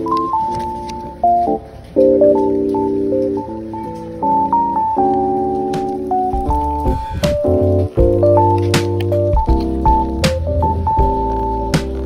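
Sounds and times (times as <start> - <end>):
slow melodic background music: 0.0 - 12.0.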